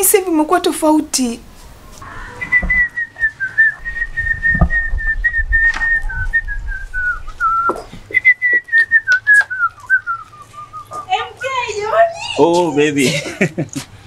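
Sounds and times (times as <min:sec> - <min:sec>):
person whistling a tune: 0:02.4 - 0:11.1
soft thumps: 0:02.5 - 0:08.7.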